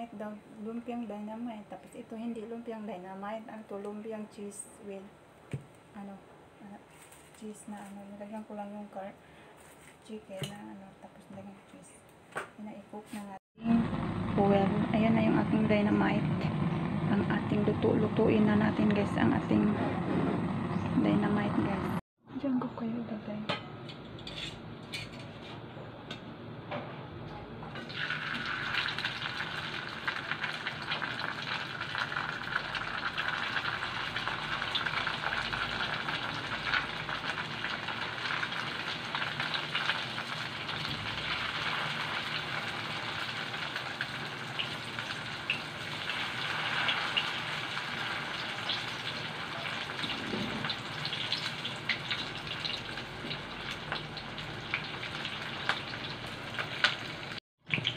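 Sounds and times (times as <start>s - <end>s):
spring rolls sizzling in oil: 27.8s - 57.9s.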